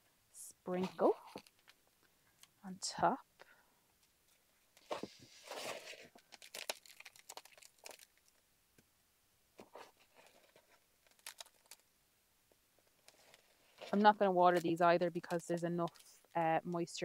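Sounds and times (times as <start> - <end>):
compost rustling and crunching: 5.4 - 8.2.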